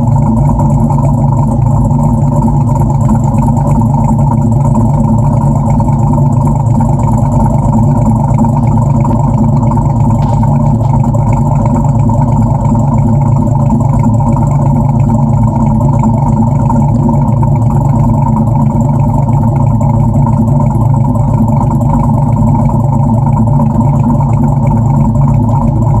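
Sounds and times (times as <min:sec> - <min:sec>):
car engine idling: 0:00.0 - 0:26.0.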